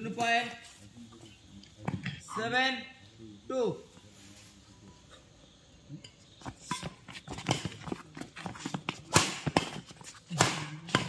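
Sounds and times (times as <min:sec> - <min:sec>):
players' footsteps: 0:06.4 - 0:11.0
rackets striking shuttlecock: 0:06.6 - 0:11.0.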